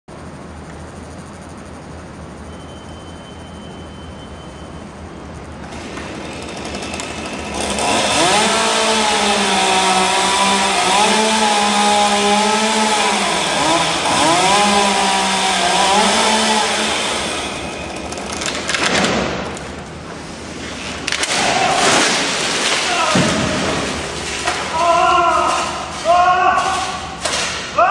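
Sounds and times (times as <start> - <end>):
chainsaw cutting at high revs: 5.7 - 18.6.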